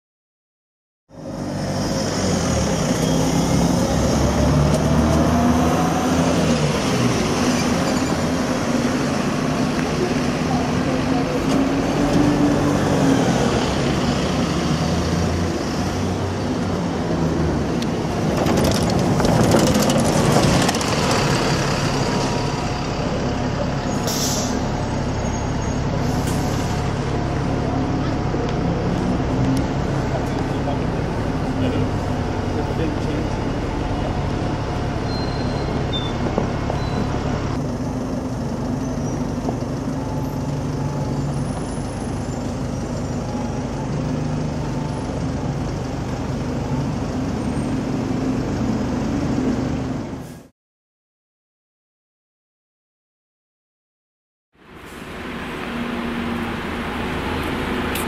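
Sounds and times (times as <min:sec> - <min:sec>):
bus engines running: 0:01.1 - 0:50.5, 0:54.6 - 0:58.0
traffic noise: 0:01.1 - 0:50.5, 0:54.5 - 0:58.0
bus air brakes hissing: 0:23.9 - 0:24.8, 0:25.9 - 0:26.8, 0:50.2 - 0:50.5.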